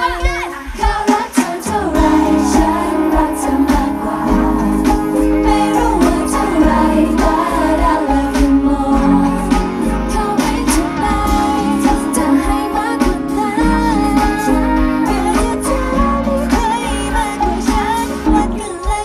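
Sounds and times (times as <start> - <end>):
pop dance backing music: 0.0 - 19.0
woman singing into microphone: 0.0 - 19.0.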